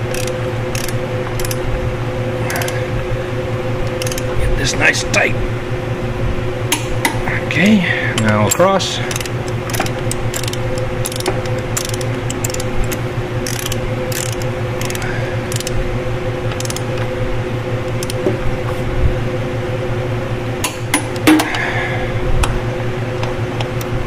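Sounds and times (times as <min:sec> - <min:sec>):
socket wrench ratcheting: 0:00.0 - 0:01.6, 0:02.5 - 0:02.8, 0:03.9 - 0:04.4, 0:08.2 - 0:15.8, 0:16.5 - 0:17.0, 0:17.9 - 0:18.2
steady background hum: 0:00.0 - 0:24.0.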